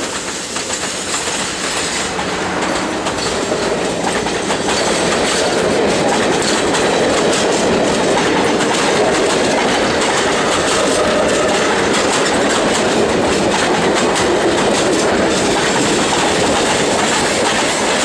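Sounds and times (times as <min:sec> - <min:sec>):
train wheels clattering over rail joints: 0:00.0 - 0:18.0.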